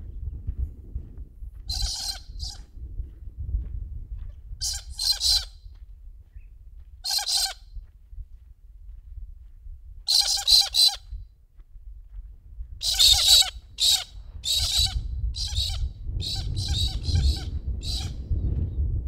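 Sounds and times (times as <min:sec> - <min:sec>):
low rumble: 0:00.0 - 0:05.0, 0:14.2 - 0:19.0
birds squawking harshly: 0:01.7 - 0:02.6, 0:04.6 - 0:05.5, 0:07.0 - 0:07.6, 0:10.1 - 0:11.0, 0:12.8 - 0:18.2.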